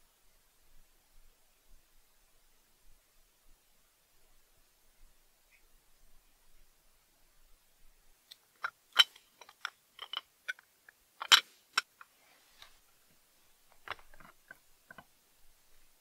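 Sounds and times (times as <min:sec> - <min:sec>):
glass lens clicks and taps: 0:08.3 - 0:11.9, 0:13.8 - 0:15.1.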